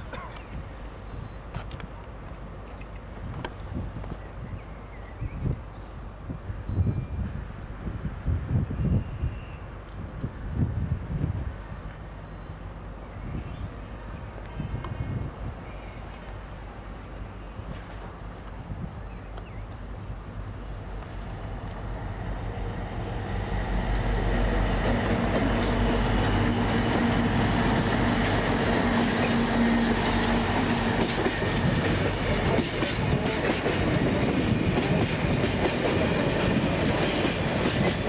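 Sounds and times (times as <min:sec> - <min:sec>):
diesel locomotive engine drone: 0:09.7 - 0:38.0
train wheels clicking over rail joints: 0:24.7 - 0:38.0.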